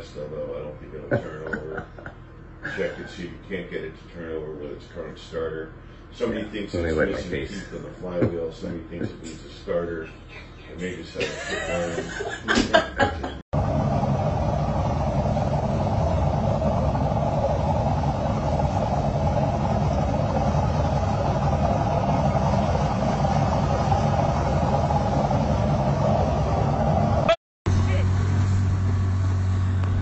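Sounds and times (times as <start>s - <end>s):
boat motor drone: 13.6s - 30.0s.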